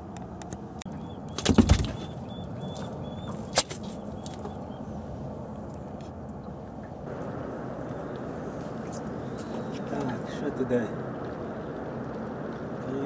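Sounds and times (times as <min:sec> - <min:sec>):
fish smacking deck: 0:01.4 - 0:02.1, 0:02.8 - 0:04.5
fish flopping on carpeted deck: 0:01.4 - 0:04.6.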